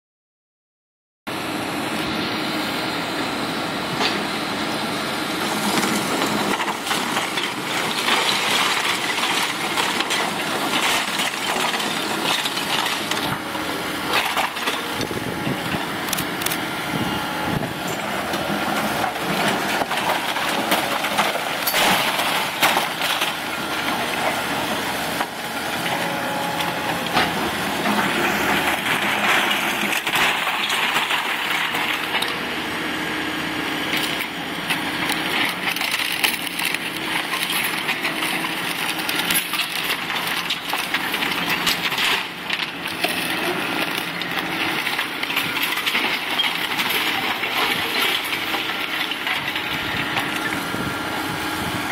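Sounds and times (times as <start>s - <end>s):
excavator engines running: 1.3s - 51.9s
falling debris: 5.7s - 13.4s, 18.6s - 24.5s, 26.6s - 32.2s
brick and timber crashing: 6.2s - 13.4s, 18.7s - 24.3s, 27.9s - 32.2s.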